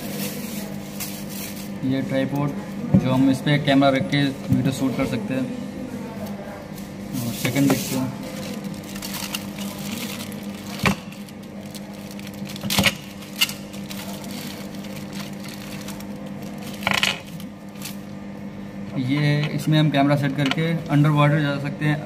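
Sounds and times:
plastic bag crinkling: 7.8 - 18.0.

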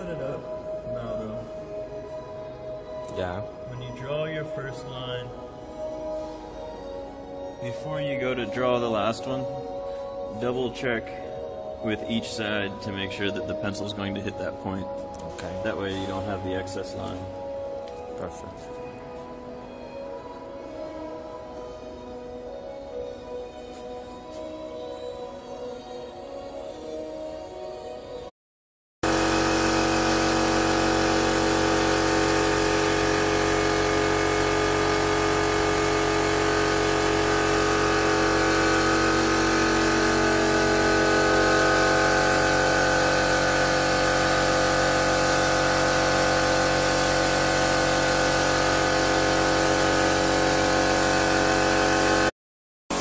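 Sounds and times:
air compressor running: 29.0 - 52.3
spray gun hissing: 29.1 - 52.1.

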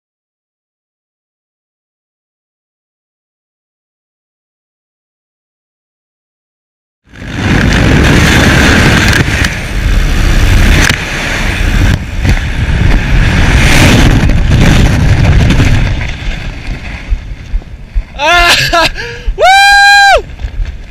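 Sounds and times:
wind buffeting microphone: 7.1 - 20.9.

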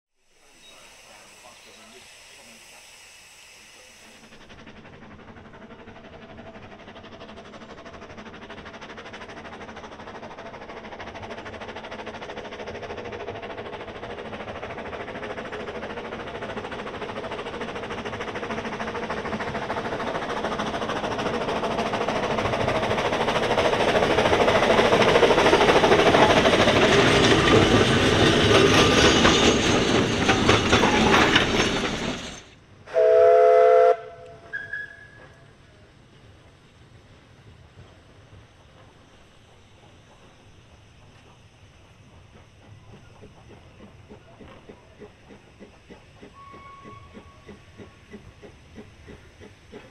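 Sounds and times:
steam locomotive running: 0.2 - 49.9
two-tone steam whistle blast: 0.3 - 4.3, 32.9 - 35.4, 46.3 - 47.5
higher whistle toot: 32.9 - 35.4.

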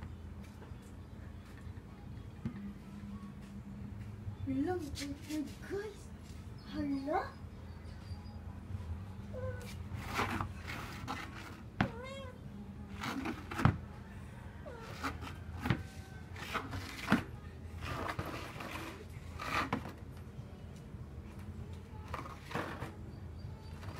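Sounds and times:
cat meowing: 11.8 - 12.4.

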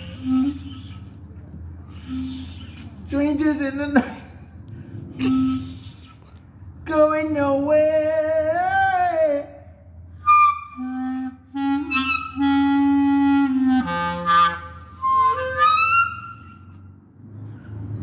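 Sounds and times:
solo clarinet: 0.0 - 2.8, 5.1 - 6.2, 10.2 - 16.8.

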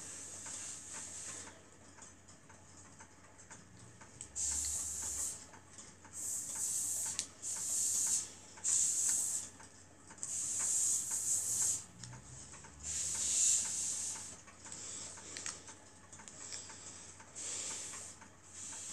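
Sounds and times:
mechanism ticking: 0.3 - 18.9
high hiss bursts: 4.4 - 5.4, 6.2 - 9.5, 10.3 - 11.9, 12.8 - 14.3.

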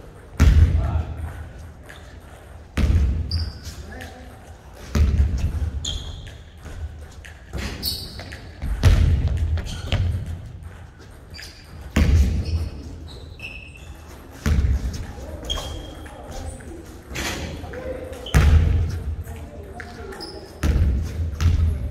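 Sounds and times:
basketball thumping in gym: 0.4 - 1.1, 2.8 - 3.5, 4.9 - 5.8, 7.5 - 10.7, 11.8 - 12.8, 14.4 - 15.0, 18.3 - 19.0, 20.6 - 21.9
sneaker squeaks on hardwood: 3.2 - 3.8, 5.7 - 6.9, 7.5 - 8.8, 11.3 - 16.1, 18.2 - 19.0.

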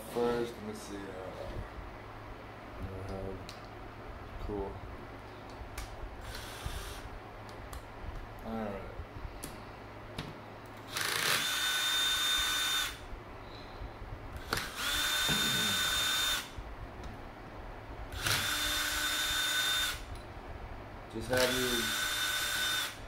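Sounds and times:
cordless drill whining: 6.2 - 7.0, 10.9 - 13.0, 14.4 - 16.6, 18.1 - 20.1, 21.3 - 23.0.

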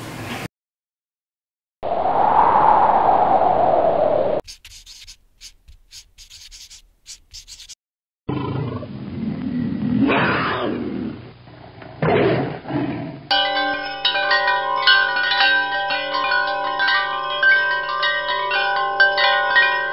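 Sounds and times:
tiger-like growling roar: 8.3 - 13.3
wind chimes ringing: 13.3 - 19.9.

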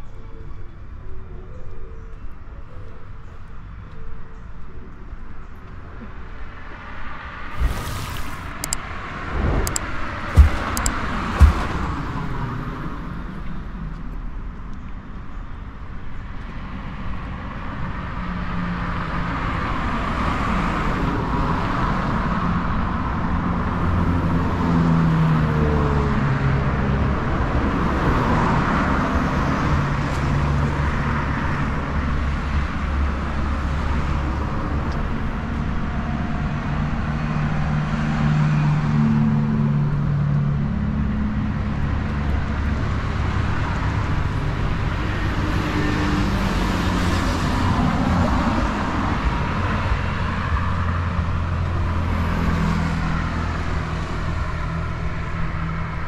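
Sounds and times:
vehicle engines running: 7.6 - 13.2
sharp knocks: 9.4 - 12.0.

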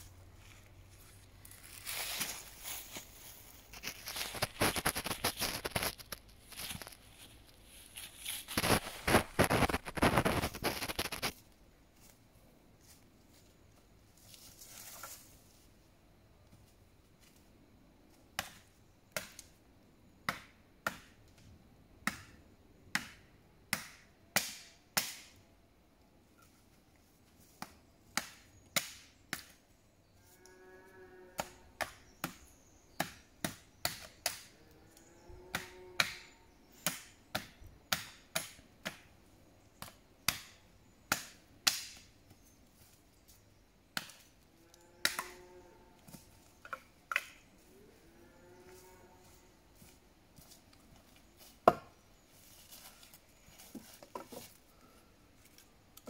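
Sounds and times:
wood being chopped: 20.3 - 21.1, 22.0 - 25.3, 27.6 - 29.5, 31.4 - 32.4, 33.0 - 34.5, 35.5 - 36.2, 36.8 - 39.0, 39.8 - 40.5, 41.1 - 42.1, 51.6 - 52.0.

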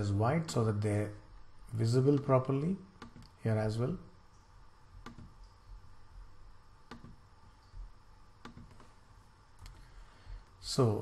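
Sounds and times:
computer mouse clicking: 3.0 - 3.4, 5.0 - 5.5, 6.9 - 7.8, 8.4 - 8.9.

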